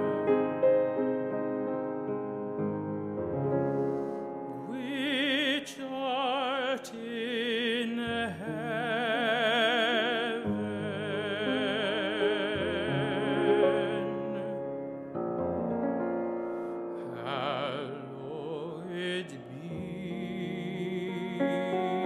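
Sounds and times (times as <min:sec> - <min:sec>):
piano accompaniment: 0:00.0 - 0:22.0
man singing operatically: 0:04.6 - 0:14.8, 0:17.1 - 0:22.0.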